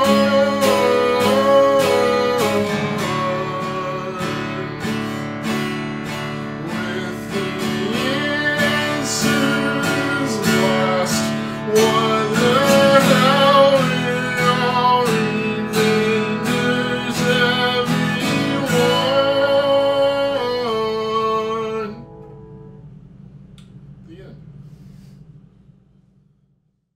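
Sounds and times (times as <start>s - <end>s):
man singing: 0.0s - 5.1s, 6.0s - 22.1s
acoustic guitar strummed: 0.0s - 23.5s.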